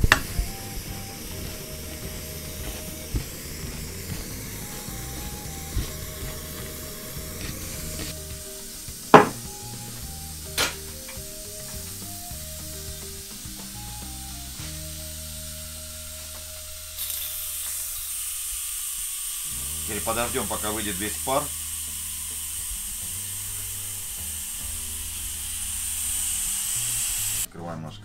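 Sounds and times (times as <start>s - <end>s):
background music: 0.0s - 17.7s, 19.5s - 28.0s
steam venting with loud hiss: 0.0s - 27.5s
sharp knocks: 8.9s - 9.5s.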